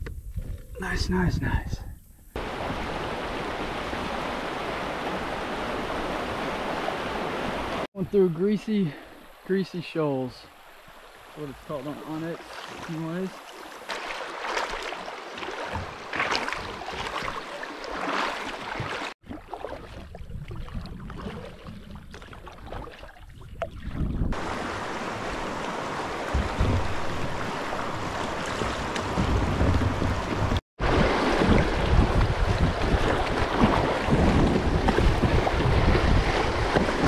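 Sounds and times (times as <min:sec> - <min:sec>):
wind buffeting microphone: 0:00.0 - 0:07.8, 0:23.4 - 0:37.0
river water rushing and splashing: 0:02.4 - 0:20.0, 0:24.3 - 0:37.0.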